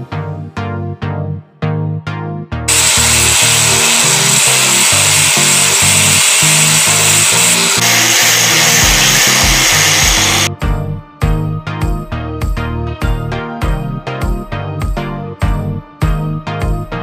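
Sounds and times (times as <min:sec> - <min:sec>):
background music: 0:00.0 - 0:17.0
angle grinder cutting plastic pipe: 0:02.7 - 0:10.5.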